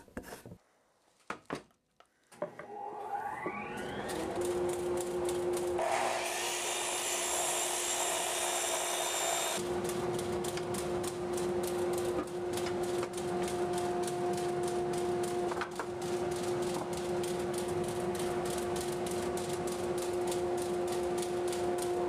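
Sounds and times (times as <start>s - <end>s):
miter saw cutting wood: 5.7s - 9.6s.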